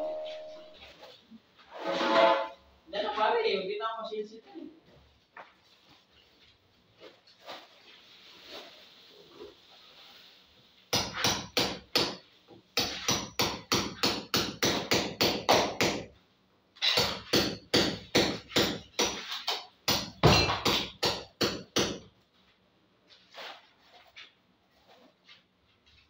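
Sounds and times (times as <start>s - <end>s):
hammer striking concrete block wall: 10.9s - 12.2s, 12.8s - 16.1s, 16.9s - 22.1s.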